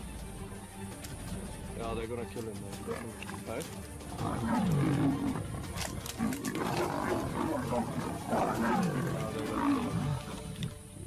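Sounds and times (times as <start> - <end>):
lions growling: 2.8 - 11.0.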